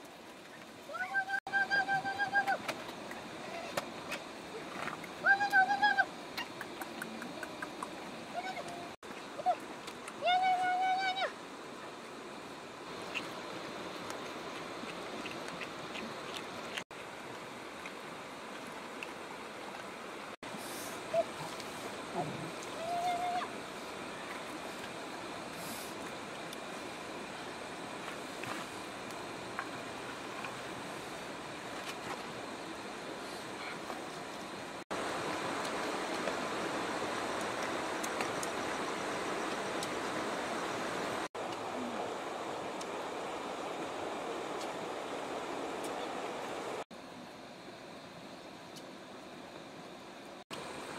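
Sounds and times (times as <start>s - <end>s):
running water rushing: 0.0s - 50.9s
animals eating clicks: 6.4s - 8.8s, 14.0s - 19.9s.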